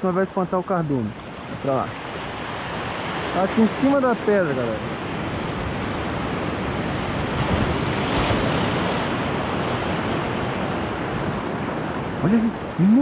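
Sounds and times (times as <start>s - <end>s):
sea surf washing against rocks: 0.1s - 13.0s
wind on microphone: 4.7s - 13.0s.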